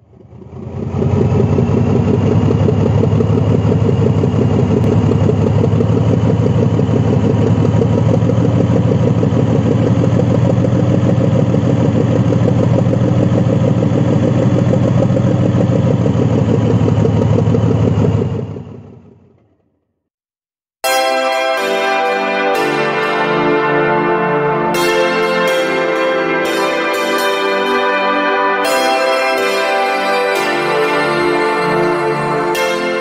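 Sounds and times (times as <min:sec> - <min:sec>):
diesel locomotive engine idling: 0:00.0 - 0:19.7.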